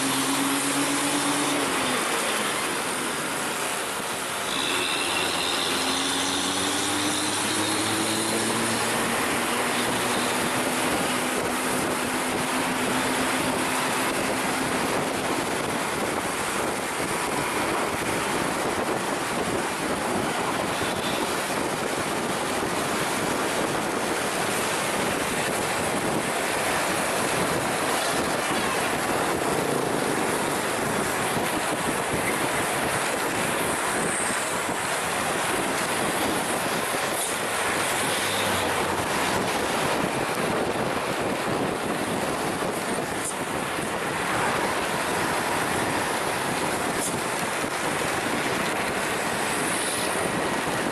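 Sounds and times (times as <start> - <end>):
road and wind noise: 0.0 - 50.9
engine accelerating: 5.7 - 14.9.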